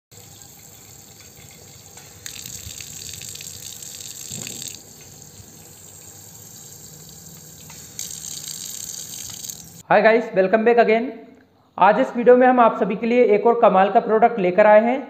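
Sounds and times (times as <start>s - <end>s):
faucet water splashing on concrete: 0.1s - 9.8s.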